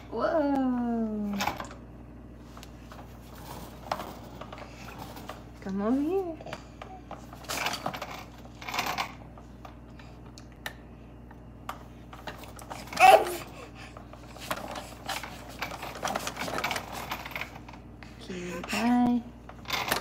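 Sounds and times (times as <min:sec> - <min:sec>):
baby vocalizing: 0:13.0 - 0:13.6.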